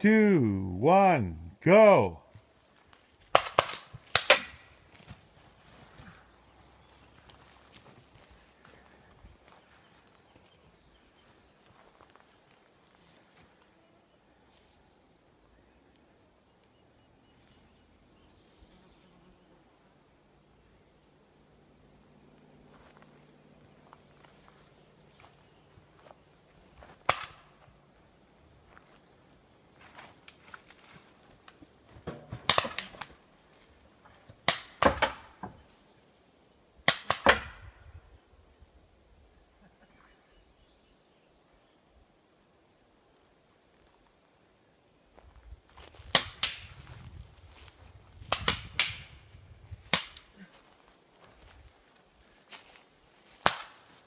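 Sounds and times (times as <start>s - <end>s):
faint background hiss: 0.0s - 36.9s
paintball pistol shots: 3.3s - 4.7s, 32.4s - 33.0s, 36.9s - 37.7s, 48.2s - 49.2s.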